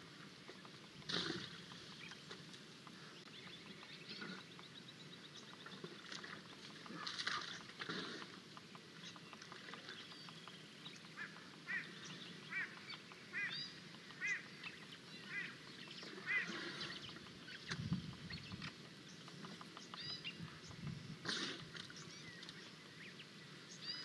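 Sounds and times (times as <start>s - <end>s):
bird honking calls: 11.1s - 14.6s, 15.2s - 17.1s.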